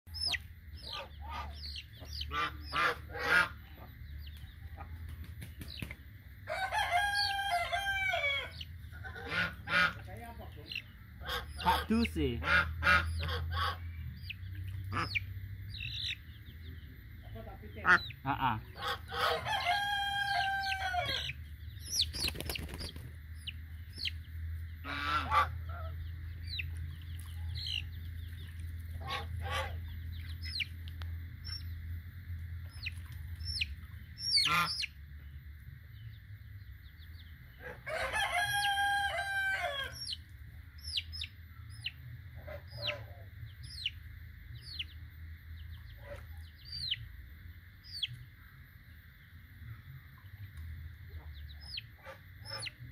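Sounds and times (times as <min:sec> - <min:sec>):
chicks peeping: 0:00.1 - 0:31.8, 0:32.6 - 0:35.3, 0:40.0 - 0:44.0, 0:44.6 - 0:45.0, 0:45.6 - 0:47.1, 0:47.8 - 0:48.2, 0:51.1 - 0:52.8
rooster crowing: 0:06.4 - 0:08.6, 0:19.1 - 0:21.4, 0:37.6 - 0:40.2.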